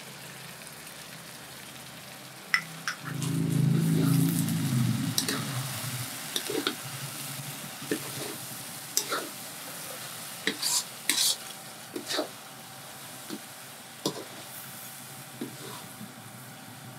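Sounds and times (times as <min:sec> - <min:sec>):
food sizzling: 0:00.0 - 0:16.9
metal spatula scraping a wok: 0:03.0 - 0:12.4, 0:14.1 - 0:16.0.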